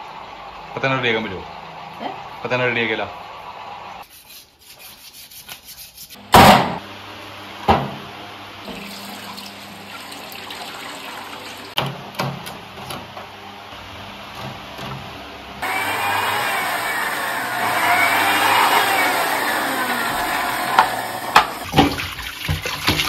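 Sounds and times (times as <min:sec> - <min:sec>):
tap water running into sink: 0:08.7 - 0:11.8.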